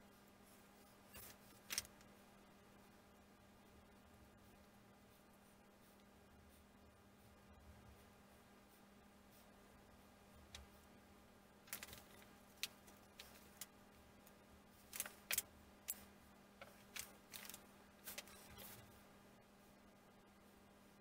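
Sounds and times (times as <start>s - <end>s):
small wooden parts clicking: 11.7s - 16.0s, 16.6s - 18.6s.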